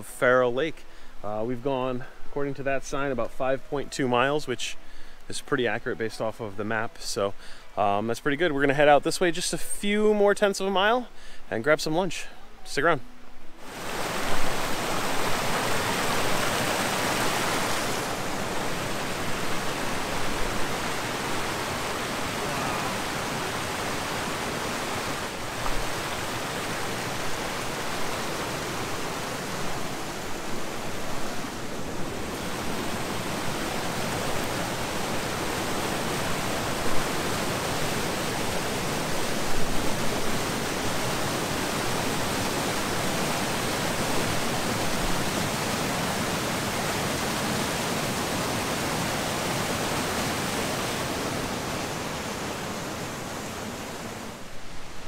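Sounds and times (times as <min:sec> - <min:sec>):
stream cascading over rocks: 0:13.5 - 0:55.0.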